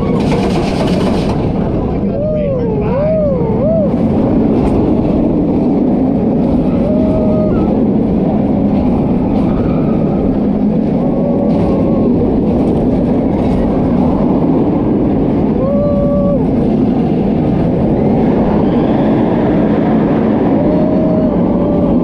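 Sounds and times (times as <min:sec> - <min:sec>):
roller coaster train on track: 0:00.0 - 0:22.0
wind rushing over microphone: 0:00.0 - 0:22.0.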